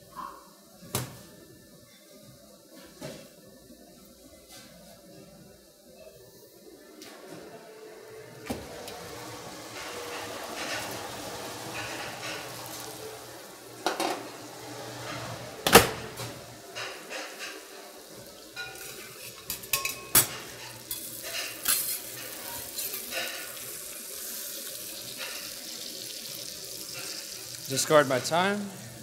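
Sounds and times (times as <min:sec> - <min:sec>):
butter sizzling: 0:08.5 - 0:29.0
pan and spoon clinking: 0:16.7 - 0:24.4.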